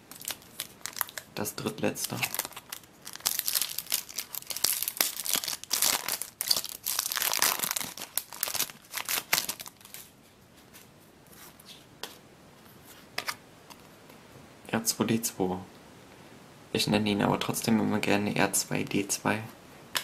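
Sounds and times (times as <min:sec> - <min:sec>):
foil wrapper crinkling: 0:00.1 - 0:10.1.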